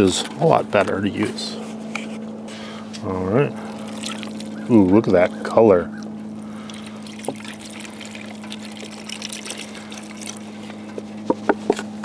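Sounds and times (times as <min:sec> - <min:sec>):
broth pouring into a pot: 0:03.6 - 0:04.7, 0:06.4 - 0:10.8.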